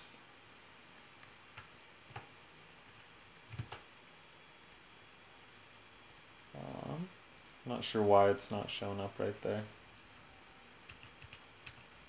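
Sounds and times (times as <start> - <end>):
low room hiss: 0.0 - 12.0
computer mouse clicks: 0.5 - 2.3, 3.2 - 3.8, 4.6 - 4.8, 6.1 - 6.3, 7.4 - 7.6.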